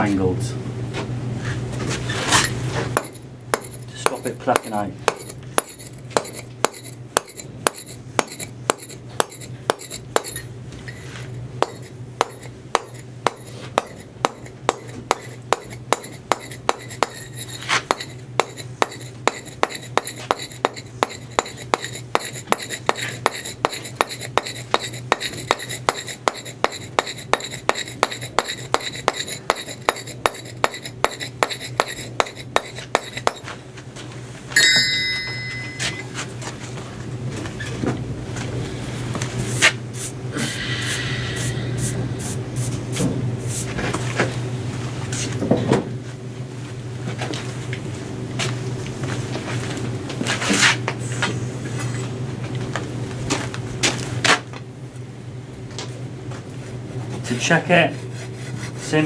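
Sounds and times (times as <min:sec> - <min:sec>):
mallet tapping chisel on stone: 0:03.0 - 0:10.4, 0:11.6 - 0:33.4.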